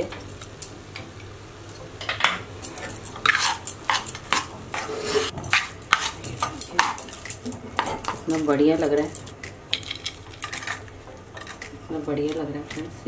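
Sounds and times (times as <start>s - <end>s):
metal spatula scraping pan: 2.6s - 12.9s.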